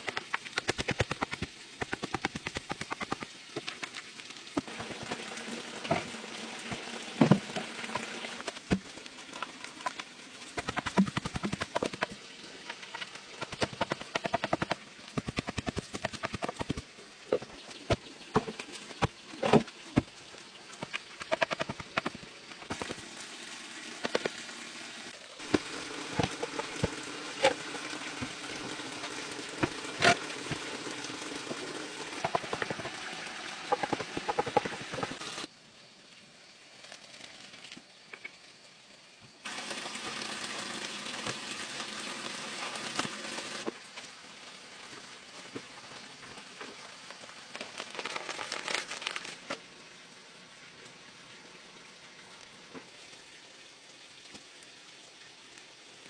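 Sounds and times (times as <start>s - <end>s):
wooden stick tamping soil: 6.7s - 20.2s, 20.8s - 23.0s
bamboo poles knocking: 12.9s - 16.8s.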